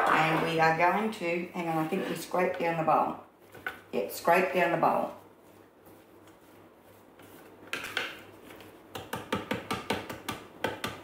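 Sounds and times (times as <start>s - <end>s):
spatula scraping steel bowl: 1.6s - 2.5s.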